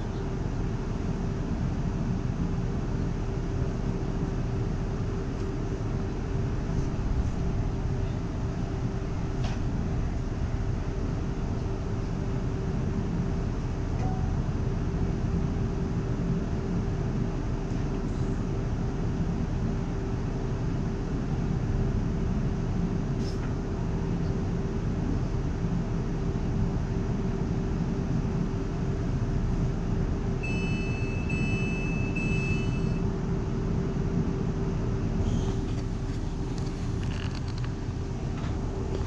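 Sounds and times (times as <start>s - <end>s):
constant hum: 0.0s - 39.0s
train rumble: 0.0s - 39.0s
short high beeps: 30.4s - 33.0s.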